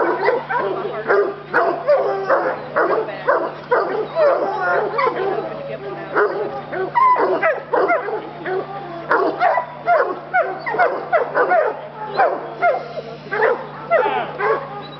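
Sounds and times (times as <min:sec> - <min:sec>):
hound barking: 0:00.0 - 0:14.9.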